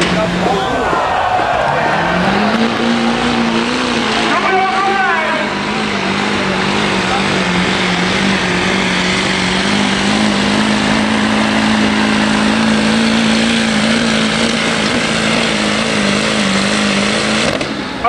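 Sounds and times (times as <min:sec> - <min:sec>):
pickup truck engine droning: 0:00.0 - 0:18.0.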